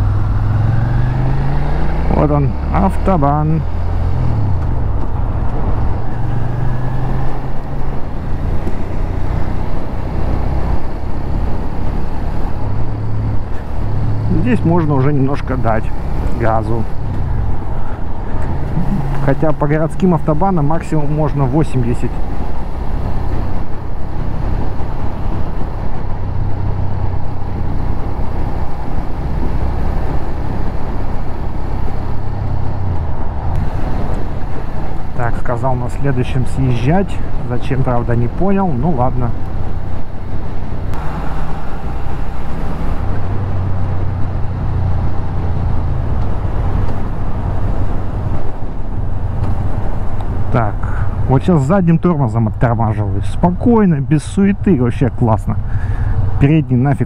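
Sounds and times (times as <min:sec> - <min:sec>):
motorcycle engine accelerating: 0:00.0 - 0:14.9, 0:15.5 - 0:19.6
motorcycle engine drone: 0:00.0 - 0:57.0
wind and road noise: 0:00.0 - 0:57.0
wind rush: 0:15.5 - 0:20.3, 0:39.3 - 0:51.4.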